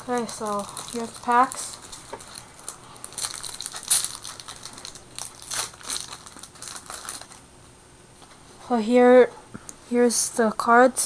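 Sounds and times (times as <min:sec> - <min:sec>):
foil wrapper crinkling: 0:00.0 - 0:07.4.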